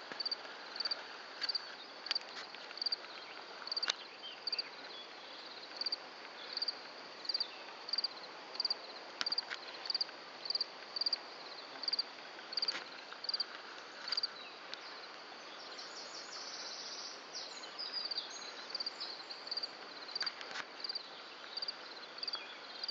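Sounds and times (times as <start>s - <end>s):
insect chirping: 0.0s - 22.9s
high insect trill: 0.2s - 15.1s.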